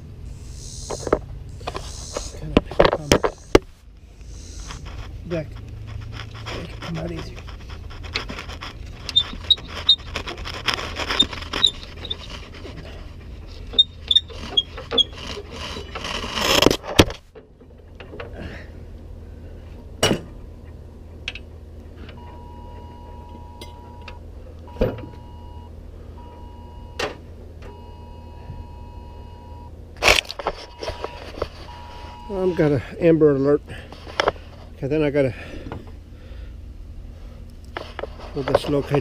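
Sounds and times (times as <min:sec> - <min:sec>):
phone emergency alert beeps: 0:22.2 - 0:27.1, 0:27.7 - 0:29.7, 0:30.6 - 0:32.6.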